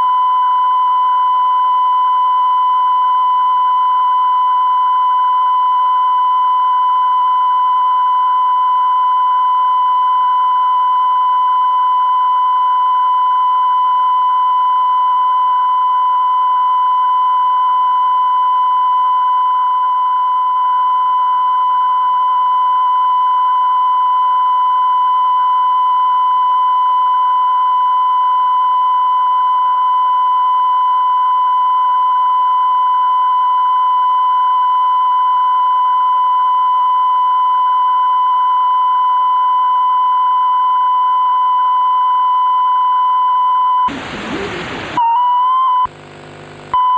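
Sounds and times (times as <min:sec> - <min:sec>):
faint hiss: 0:43.9 - 0:45.0
high-pitched test tone beep: 0:45.0 - 0:45.9.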